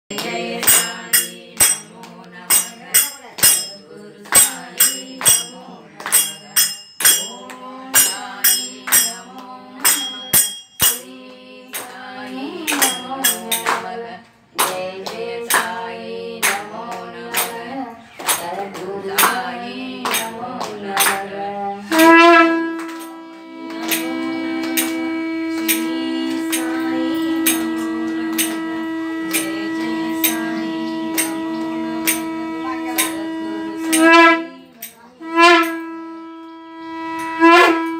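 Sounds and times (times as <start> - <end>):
conch shell blown: 0.1 - 13.9, 19.1 - 37.9
jingling percussion: 0.1 - 37.9
women singing devotional song: 0.1 - 37.9.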